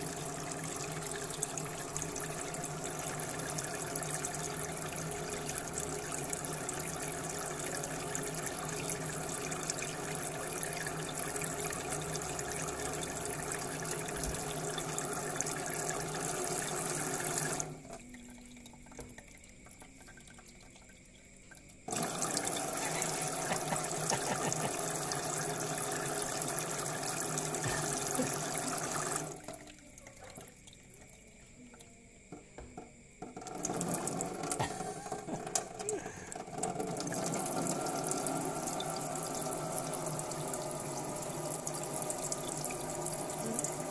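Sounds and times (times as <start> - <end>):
tap running into sink: 18.8 - 20.9, 21.9 - 29.4, 31.7 - 43.8.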